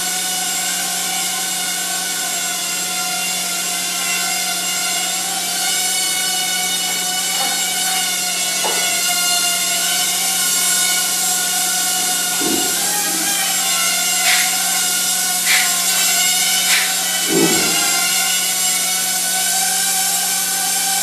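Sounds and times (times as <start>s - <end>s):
quadcopter motors whining: 0.0s - 21.0s
short taps: 14.2s - 14.6s, 15.4s - 16.1s.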